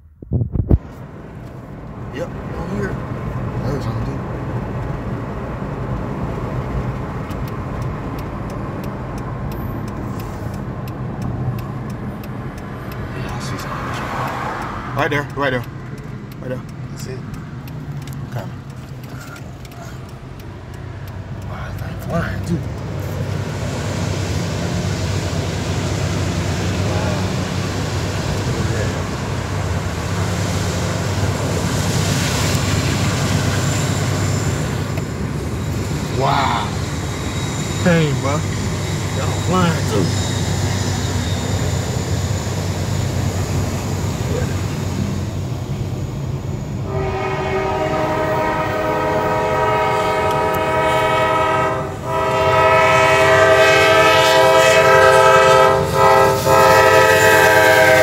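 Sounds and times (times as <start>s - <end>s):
faint sharp ticks: 7.2s - 21.9s
freight train rumbling past: 8.0s - 17.4s, 20.0s - 58.0s.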